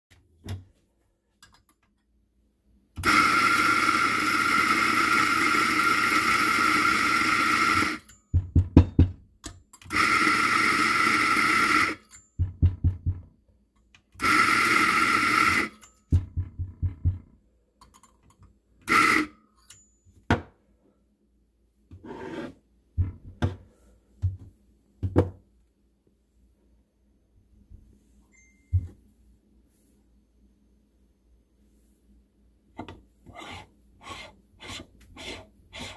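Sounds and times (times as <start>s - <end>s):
coffee grinder motor running: 3.0s - 8.1s, 9.9s - 12.0s, 14.2s - 15.7s.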